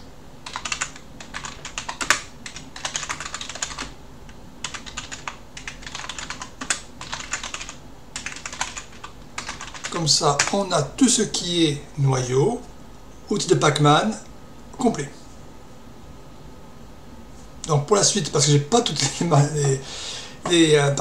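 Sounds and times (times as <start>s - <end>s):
typing on computer keyboard: 0.4s - 3.9s, 4.6s - 10.6s.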